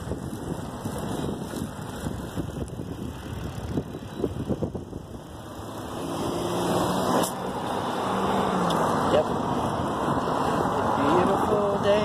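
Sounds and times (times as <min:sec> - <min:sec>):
vehicle engine hum: 0:00.0 - 0:12.0
wind rumbling on microphone: 0:00.0 - 0:12.0.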